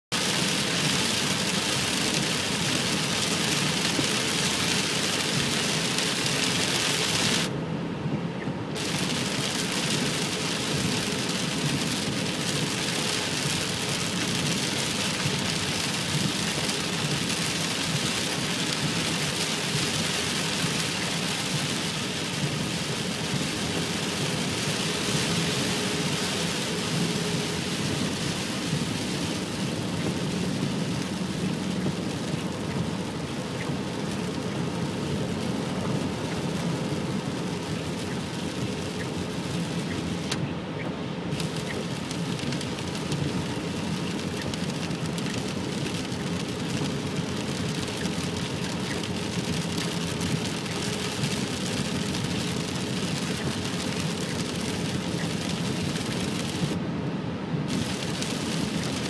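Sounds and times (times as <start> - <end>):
tyres hissing on wet road: 0.1 - 7.5, 8.8 - 40.6, 41.2 - 56.8, 57.6 - 59.0
heavy rain on a car: 0.1 - 59.0.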